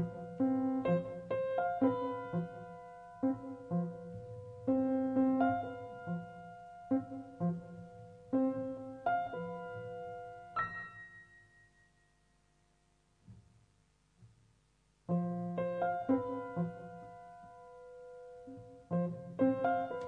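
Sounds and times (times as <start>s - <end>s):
piano music: 0.0s - 12.1s, 15.1s - 20.0s.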